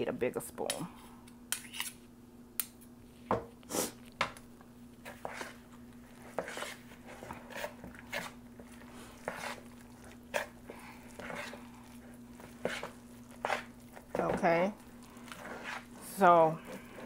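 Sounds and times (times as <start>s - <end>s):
steady low hum: 0.0s - 17.0s
spoon scraping mixing bowl: 5.0s - 17.0s.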